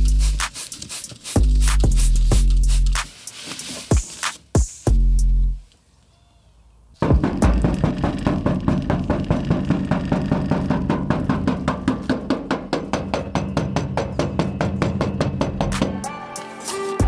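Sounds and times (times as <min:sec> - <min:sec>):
fast percussive beat: 0:00.0 - 0:03.1, 0:03.9 - 0:05.2, 0:07.0 - 0:16.0
steady bass line: 0:04.9 - 0:05.6.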